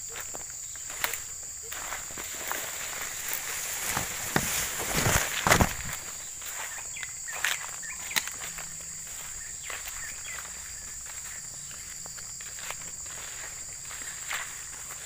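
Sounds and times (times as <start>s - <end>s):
footsteps through undergrowth: 0.0s - 15.0s
high-pitched insect drone: 5.9s - 15.0s.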